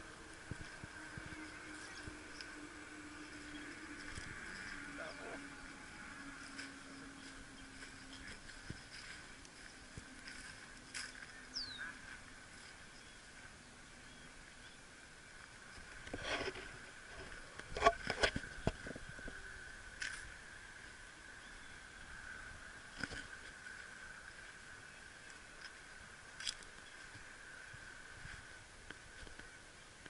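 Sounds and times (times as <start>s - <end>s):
high-pitched drone: 0.0s - 10.4s.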